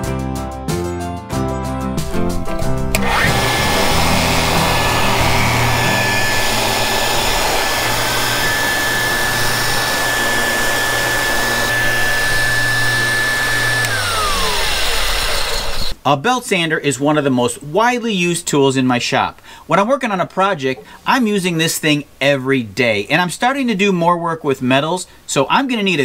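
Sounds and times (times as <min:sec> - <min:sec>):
belt sander motor whine: 0:02.9 - 0:16.0.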